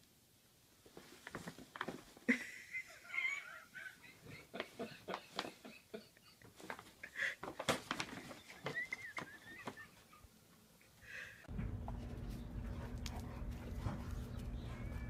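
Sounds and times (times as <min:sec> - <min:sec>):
paper bag crackling and rustling: 0:06.6 - 0:09.8.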